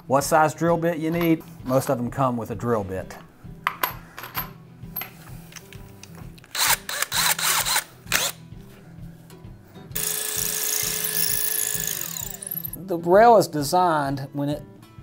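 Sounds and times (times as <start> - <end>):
background music with low beat: 0.0 - 15.0
cordless drill into concrete: 6.6 - 8.4, 10.0 - 12.7.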